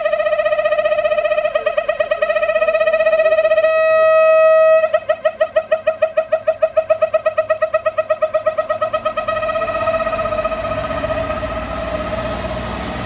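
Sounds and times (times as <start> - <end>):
train horn rapid blasts: 1.7 - 5.0.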